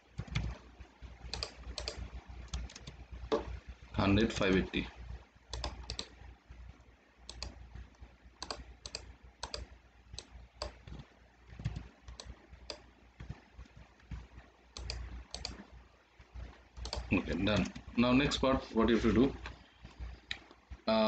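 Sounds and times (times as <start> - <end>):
keyboard key presses: 0.2 - 0.6, 1.2 - 3.6, 5.5 - 6.2, 8.4 - 15.6, 16.8 - 17.9
mouse clicks: 1.2 - 3.5, 5.5 - 6.2, 7.3 - 13.4, 14.8 - 15.6, 16.8 - 17.8.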